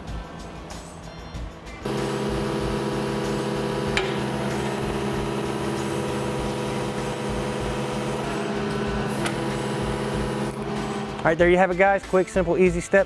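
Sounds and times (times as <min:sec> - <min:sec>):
diesel engine running: 0:01.8 - 0:11.4
hydraulics working: 0:01.9 - 0:11.4.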